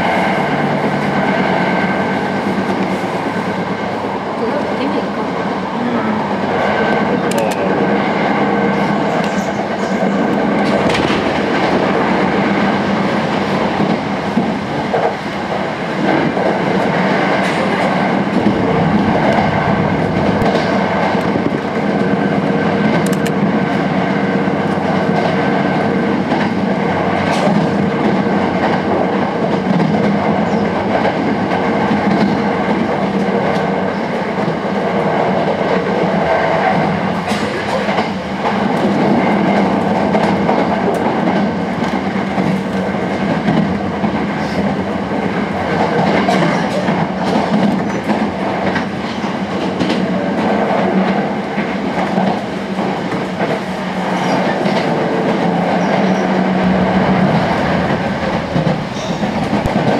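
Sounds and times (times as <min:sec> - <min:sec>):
train wheels rumbling on rails: 0:00.0 - 0:59.9
sharp clicks: 0:23.0 - 0:23.4.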